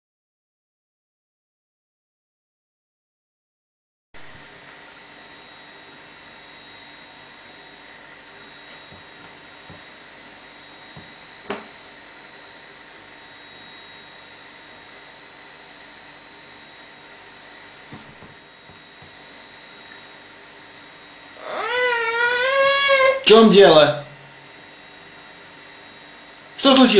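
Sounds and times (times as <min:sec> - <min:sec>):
faint high whine: 0:04.2 - 0:26.9
baby crying: 0:21.4 - 0:23.3.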